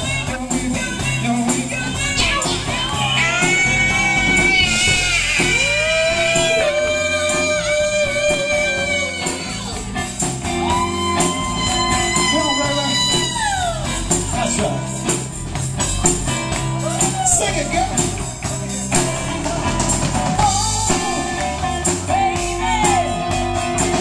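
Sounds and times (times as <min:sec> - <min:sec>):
voices singing together: 0:00.0 - 0:10.0, 0:16.3 - 0:24.0
drums: 0:00.0 - 0:24.0
electric guitar: 0:00.0 - 0:24.0.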